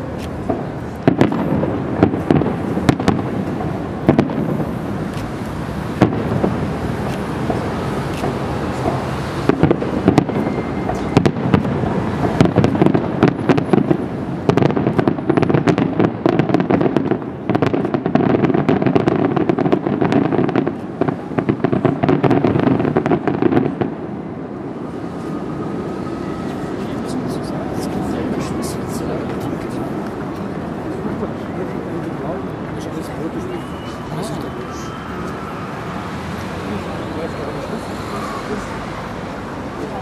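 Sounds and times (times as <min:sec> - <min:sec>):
rapid firework crackling: 0:00.0 - 0:24.1
steady background noise: 0:00.0 - 0:40.0.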